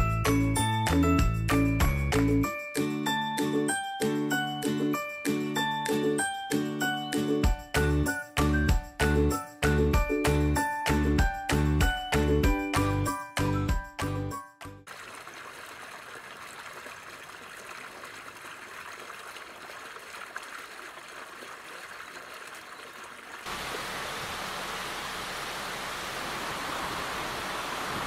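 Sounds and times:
fountain jet splashing into pond: 14.9s - 28.0s
river water pouring over weir: 14.9s - 28.0s.

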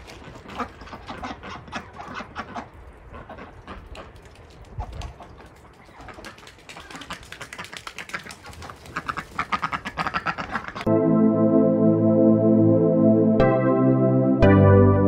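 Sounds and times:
ducks quacking: 0.1s - 4.2s, 5.2s - 10.9s
music: 10.9s - 15.0s.

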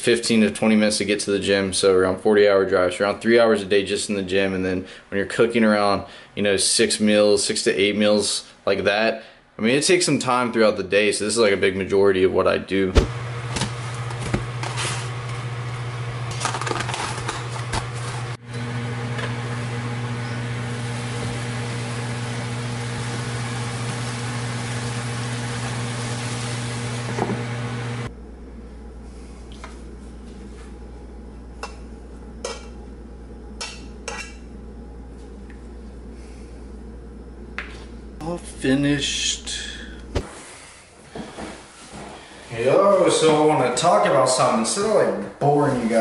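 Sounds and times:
low appliance hum: 0.0s - 46.0s
meat sizzling in a frying pan: 20.4s - 27.2s.

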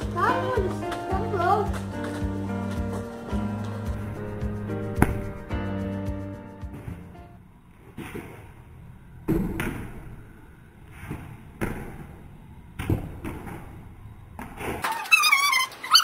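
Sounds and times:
ball bouncing on concrete: 0.0s - 5.6s.

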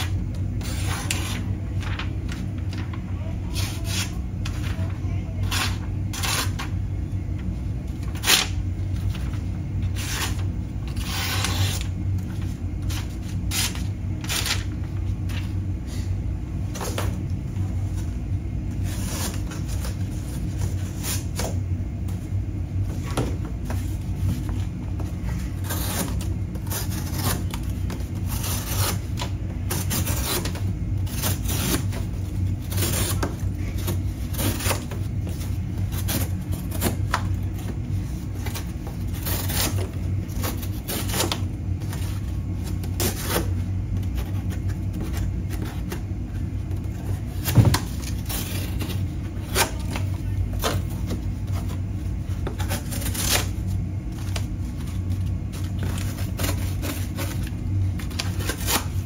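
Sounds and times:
knife cutting cardboard: 0.0s - 1.5s, 4.8s - 6.8s, 9.9s - 14.7s, 25.2s - 59.0s
cardboard rustling: 0.0s - 59.0s
steady low hum: 0.0s - 59.0s.

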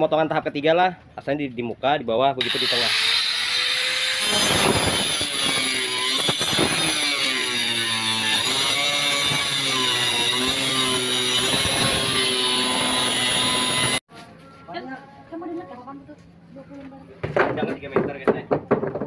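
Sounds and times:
angle grinder cutting: 2.4s - 14.0s.

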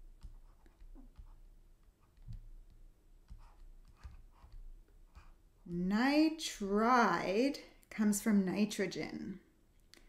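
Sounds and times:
stylus tapping on a tablet: 0.0s - 5.4s.

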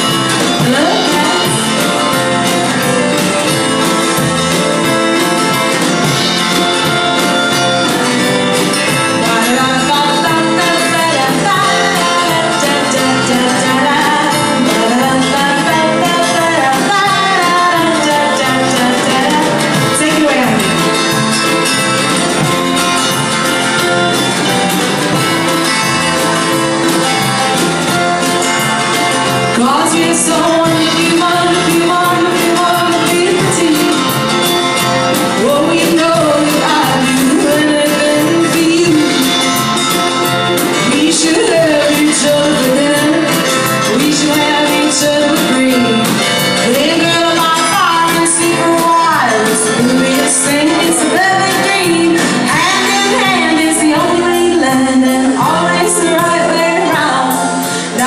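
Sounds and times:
woman singing: 0.0s - 4.2s, 8.7s - 21.2s, 27.9s - 58.0s
drum kit: 0.0s - 58.0s
electric guitar: 0.0s - 58.0s.

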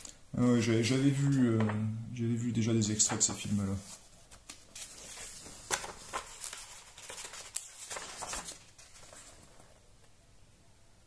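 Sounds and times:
magazine pages rustling: 2.9s - 10.1s.

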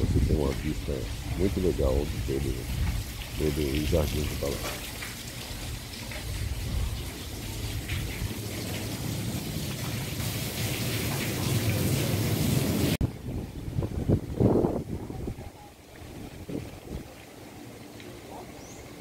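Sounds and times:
running water splashing: 0.0s - 13.0s, 13.7s - 19.0s.

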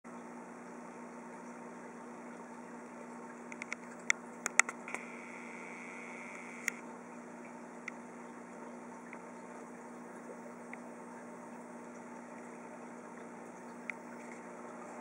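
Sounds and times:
aquarium air pump humming: 0.1s - 15.0s
sharp clicks: 3.6s - 5.2s, 6.2s - 6.8s
faint high whine: 4.8s - 6.8s.

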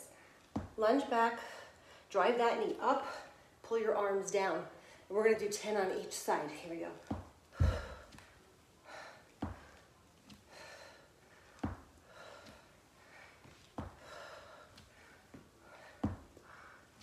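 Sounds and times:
foot thumping on floor: 0.5s - 0.8s, 7.0s - 8.3s, 9.4s - 10.4s, 11.5s - 12.6s, 13.4s - 14.1s, 14.8s - 16.4s.

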